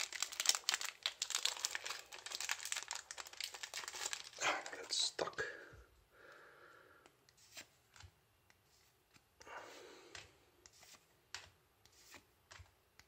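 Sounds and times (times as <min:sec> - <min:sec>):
trading cards flicking and sliding: 0:10.1 - 0:12.8.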